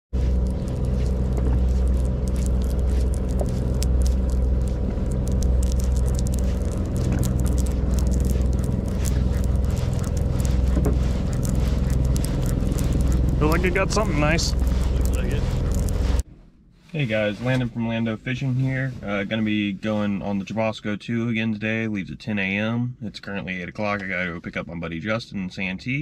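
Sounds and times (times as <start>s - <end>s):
boat engine humming: 0.0s - 16.3s.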